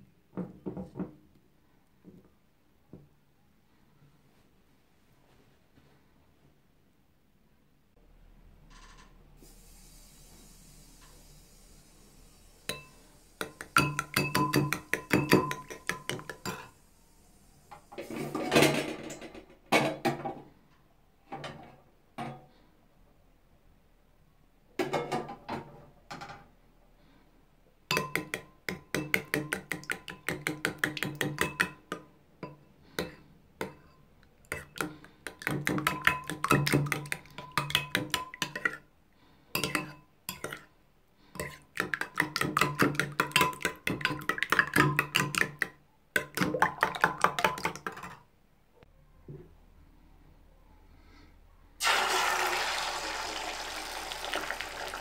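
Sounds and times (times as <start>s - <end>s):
fork beating eggs in bowl: 12.7s - 16.8s, 27.9s - 38.8s, 39.6s - 40.7s, 41.4s - 48.2s.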